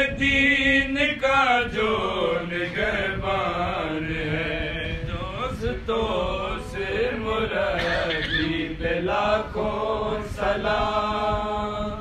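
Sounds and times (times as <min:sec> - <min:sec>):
man chanting unaccompanied: 0:00.0 - 0:12.0.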